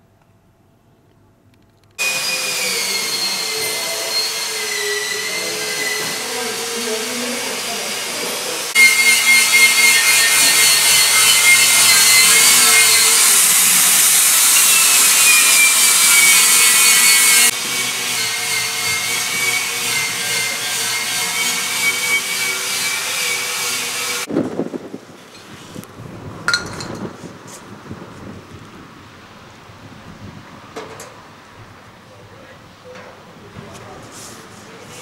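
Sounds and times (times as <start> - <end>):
angle grinder grinding steel: 2.0 - 24.3.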